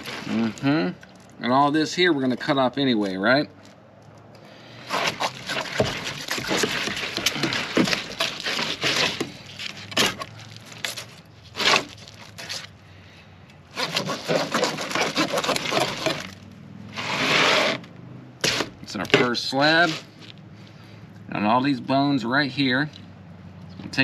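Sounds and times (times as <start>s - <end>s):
knife rasping through fish bones: 4.8s - 11.0s, 13.8s - 16.4s.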